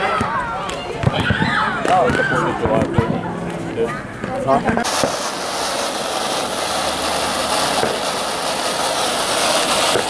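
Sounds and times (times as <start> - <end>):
firework fountain hissing: 4.7 - 10.0.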